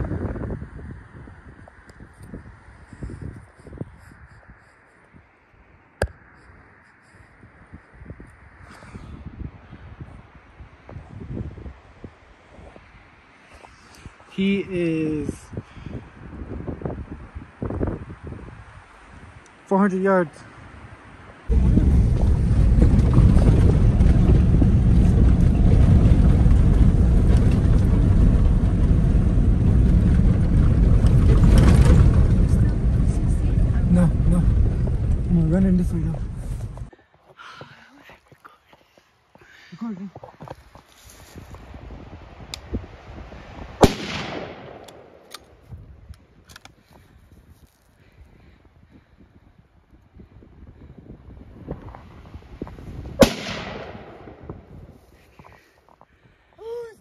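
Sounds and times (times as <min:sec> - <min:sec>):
low rumbling noise: 0:20.9 - 0:37.0, 0:48.4 - 0:56.5
rifle shot: 0:43.8 - 0:45.5, 0:53.2 - 0:54.7.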